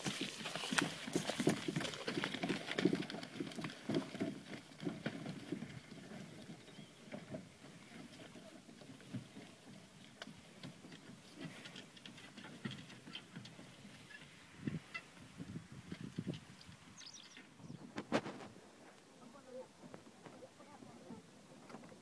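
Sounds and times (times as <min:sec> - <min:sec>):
running footsteps on wooden boards: 0:00.0 - 0:13.8.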